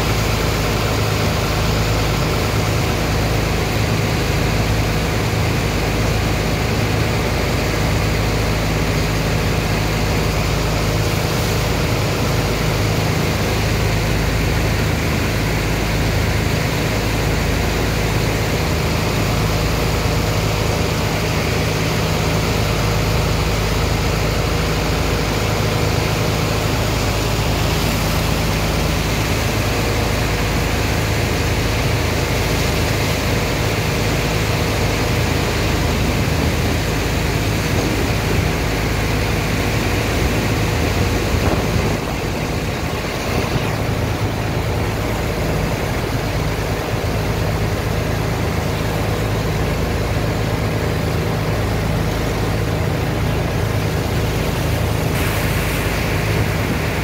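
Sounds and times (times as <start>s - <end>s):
engine running: 0.0s - 57.0s
water and slurry gushing into hold: 0.0s - 57.0s.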